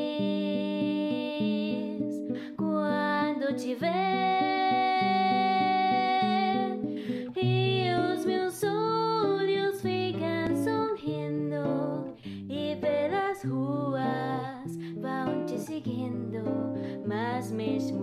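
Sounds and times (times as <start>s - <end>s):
plucked guitar: 0.0s - 18.0s
woman singing with vibrato: 0.0s - 18.0s.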